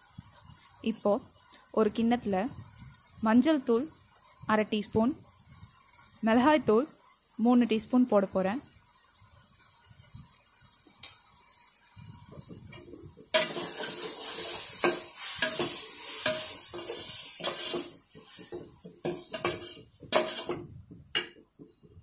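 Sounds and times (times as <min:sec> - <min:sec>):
steady high hiss: 0:00.0 - 0:20.6
metal spoon scraping bowls: 0:13.4 - 0:18.0, 0:19.0 - 0:20.6.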